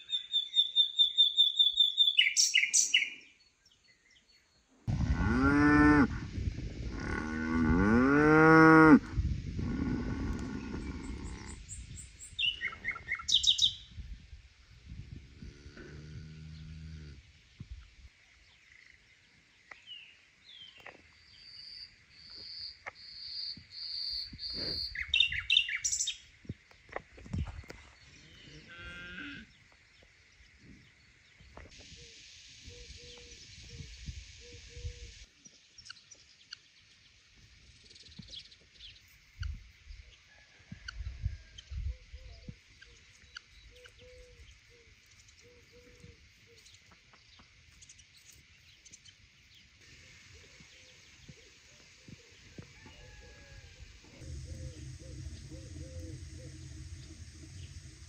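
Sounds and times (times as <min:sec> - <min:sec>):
bird trill: 0:00.0 - 0:03.2, 0:52.8 - 0:58.0
birds calling: 0:49.9 - 0:58.0.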